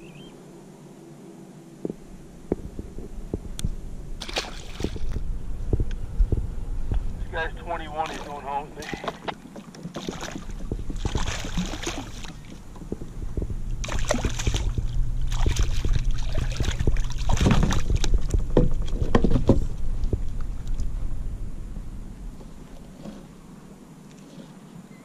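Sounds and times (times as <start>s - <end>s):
low steady rumble: 0.0s - 25.0s
water splashing around a kayak: 4.2s - 5.8s, 7.1s - 21.4s
knocks against a hull: 8.8s - 20.5s.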